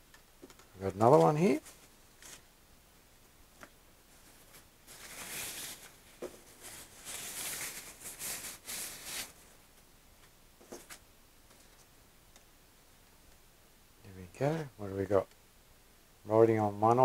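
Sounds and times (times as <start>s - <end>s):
packaging sleeve rustling: 4.1s - 9.6s.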